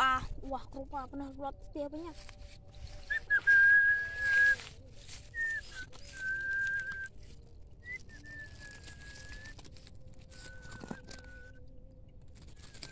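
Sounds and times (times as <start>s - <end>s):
person whistling long notes: 2.9s - 11.6s.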